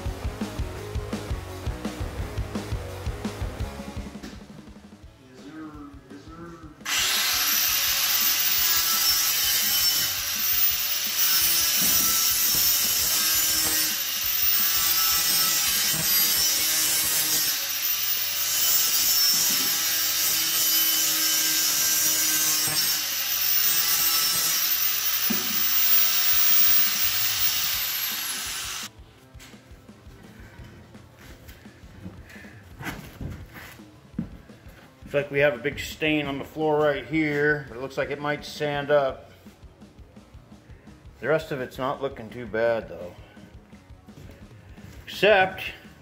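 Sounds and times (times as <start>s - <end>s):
angle grinder sanding wood floor: 6.8s - 28.9s.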